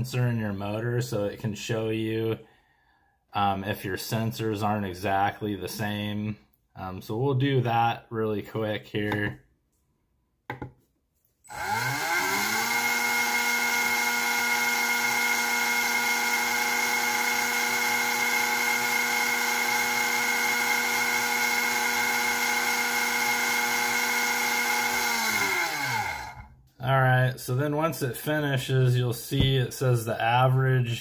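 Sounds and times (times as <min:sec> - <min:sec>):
electric motor whine: 0:11.5 - 0:26.5.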